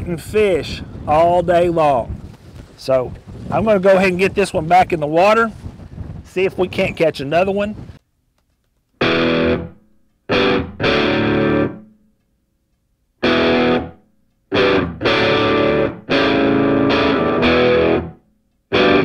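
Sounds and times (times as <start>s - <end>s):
distorted electric guitar chords: 9.0s - 11.9s, 13.2s - 19.0s.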